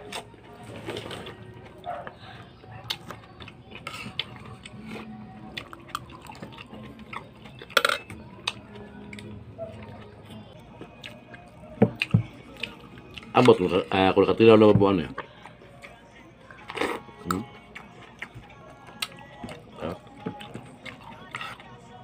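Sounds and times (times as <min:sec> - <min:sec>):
fingers and dishes clinking: 0:07.2 - 0:08.2.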